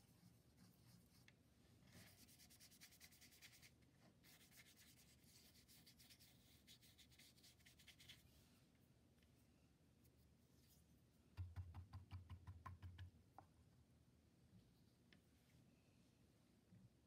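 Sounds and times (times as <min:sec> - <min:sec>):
paintbrush scrubbing on paper: 0:00.0 - 0:01.2, 0:01.8 - 0:08.5.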